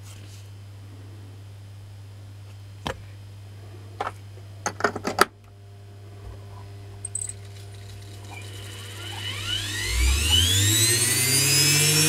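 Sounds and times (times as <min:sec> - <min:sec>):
low electrical hum: 0:00.0 - 0:12.0
metallic clicks and clatters: 0:07.0 - 0:08.5.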